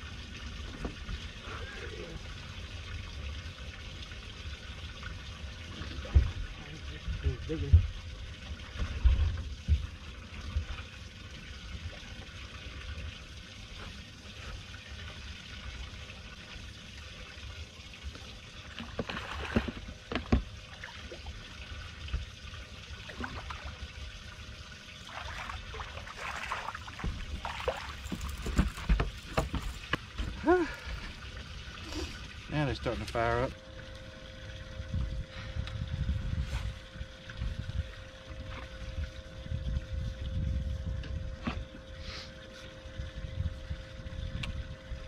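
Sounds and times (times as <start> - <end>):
water lapping against boat hull: 0.3 - 40.3
fish splashing: 25.0 - 29.4.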